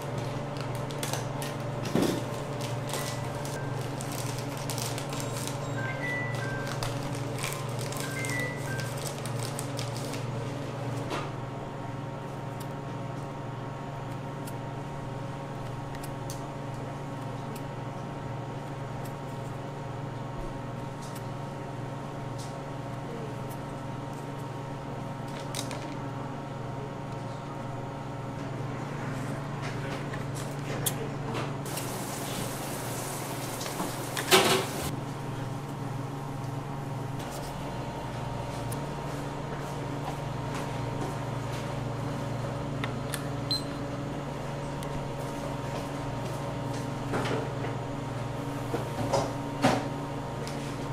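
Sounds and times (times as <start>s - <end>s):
paper rustling: 2.3s - 5.6s, 6.6s - 10.3s.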